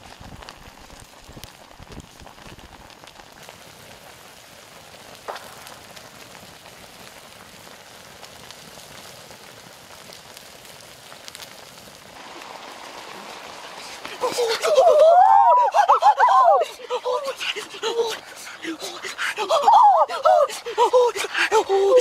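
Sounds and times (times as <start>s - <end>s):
sauce sizzling and bubbling: 0.0s - 16.0s
wood fire crack: 0.0s - 22.0s.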